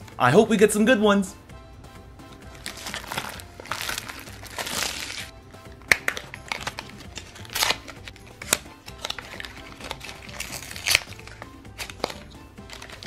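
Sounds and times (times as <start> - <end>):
background music: 0.0 - 13.0
plastic packaging crinkling and tearing: 2.5 - 5.3, 5.9 - 13.0.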